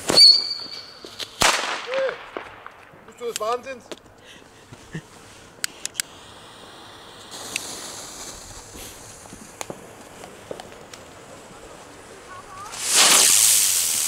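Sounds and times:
firework fuse hissing: 0:00.0 - 0:02.5, 0:04.4 - 0:14.0
sharp cracks: 0:00.0 - 0:04.1, 0:12.6 - 0:14.0.

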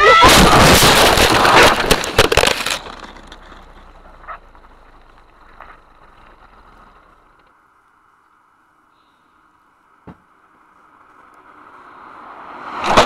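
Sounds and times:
car crash collision: 0:00.0 - 0:07.3, 0:12.8 - 0:13.0.

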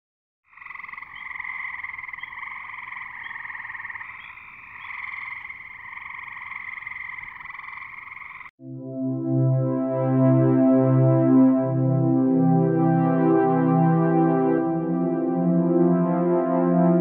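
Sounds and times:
frogs trilling: 0:00.5 - 0:08.5.

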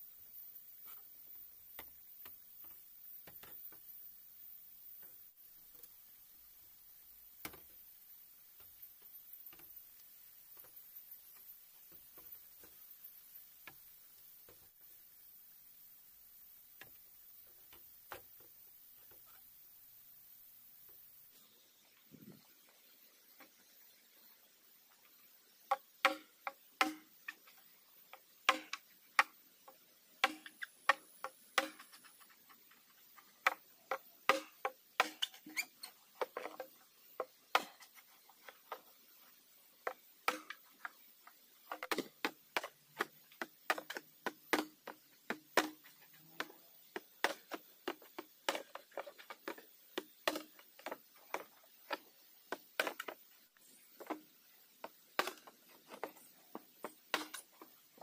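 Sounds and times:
bamboo knocking hollow: 0:25.7 - 0:32.2, 0:33.4 - 0:35.6, 0:36.2 - 0:38.9, 0:39.8 - 0:53.2, 0:54.0 - 0:57.6.

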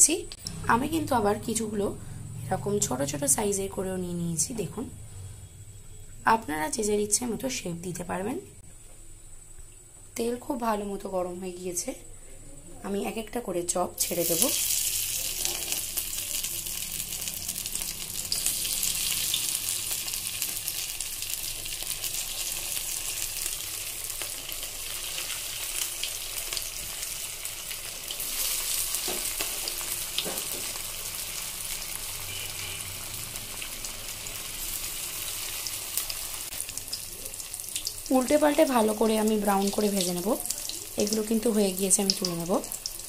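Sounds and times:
fish deep-frying in hot oil: 0:14.0 - 0:43.0.

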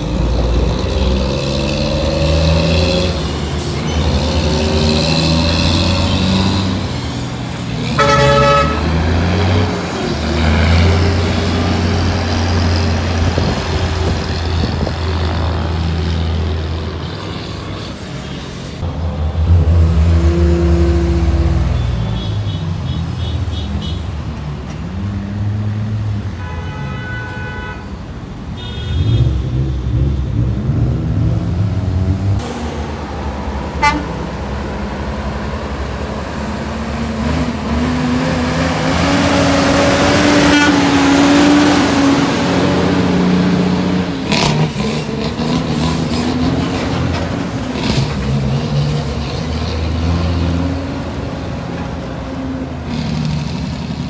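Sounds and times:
truck accelerating: 0:00.0 - 0:23.2, 0:29.0 - 0:54.0
diesel truck engines running: 0:00.0 - 0:25.6, 0:29.4 - 0:54.0
vehicle horn tooting: 0:08.0 - 0:08.9, 0:26.4 - 0:27.9, 0:28.6 - 0:29.4, 0:33.8 - 0:34.2, 0:40.4 - 0:40.9.

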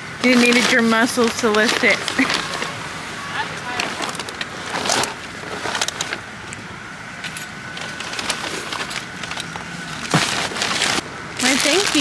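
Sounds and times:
paper bags rustling: 0:00.2 - 0:02.8, 0:03.6 - 0:06.3, 0:07.7 - 0:12.0.

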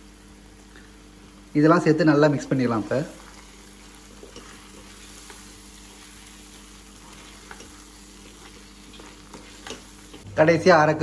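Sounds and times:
gravy sizzling in a pan: 0:00.0 - 0:10.3
wooden spatula scraping a pan: 0:06.9 - 0:10.3.

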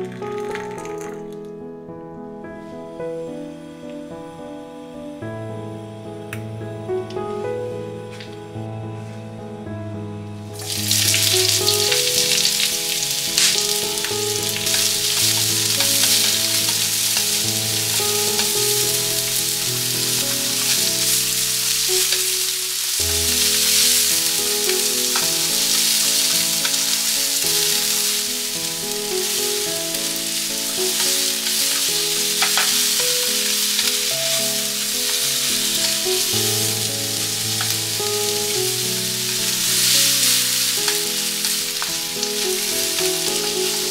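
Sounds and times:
food sizzling in oil: 0:00.0 - 0:01.4, 0:10.6 - 0:43.9
stirring clicks: 0:10.6 - 0:43.9.

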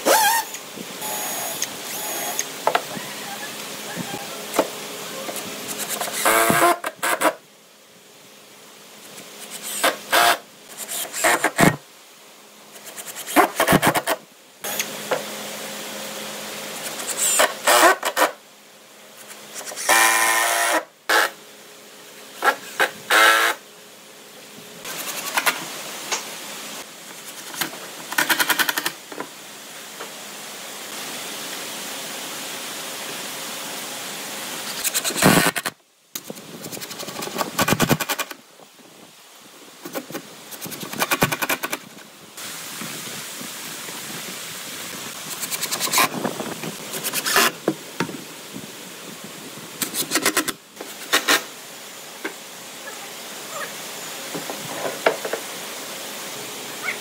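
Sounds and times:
power tool running: 0:00.0 - 0:02.8, 0:05.3 - 0:07.3, 0:19.6 - 0:21.4, 0:22.6 - 0:23.6.

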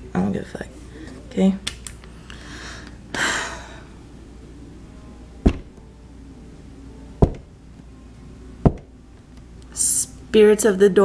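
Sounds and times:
faint low hum: 0:00.0 - 0:11.0
knocking on a door: 0:05.5 - 0:05.7, 0:07.2 - 0:07.5, 0:08.6 - 0:08.9.

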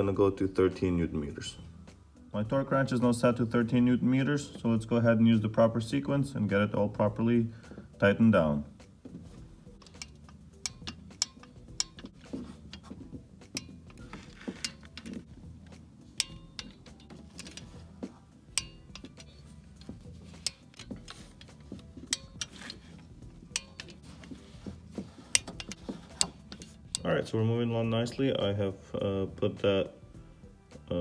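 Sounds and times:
socket wrench ratcheting: 0:09.8 - 0:27.1.

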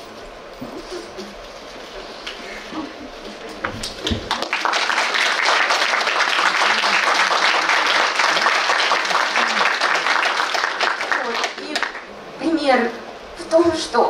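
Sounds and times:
audience applauding: 0:03.8 - 0:12.1.

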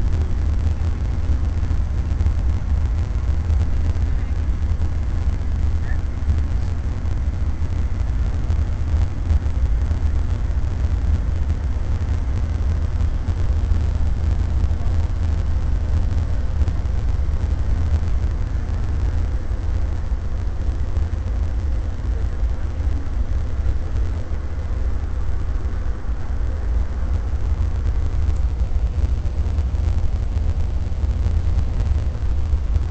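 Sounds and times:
coach interior rumble: 0:00.0 - 0:32.9.

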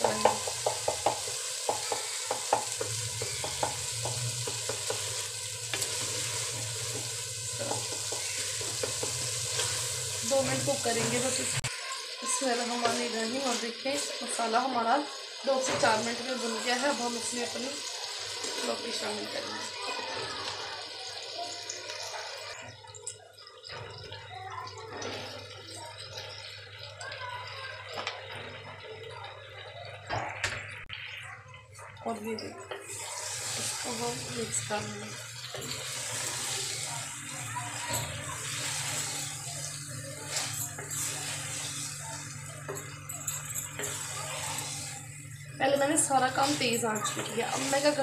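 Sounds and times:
oil sizzling: 0:00.0 - 0:48.0.

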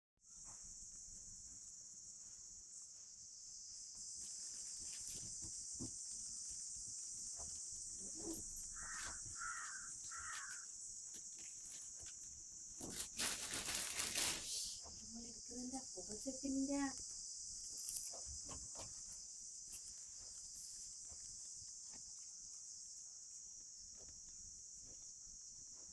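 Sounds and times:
crickets chirping: 0:00.2 - 0:25.9
bird calling: 0:08.2 - 0:10.6.

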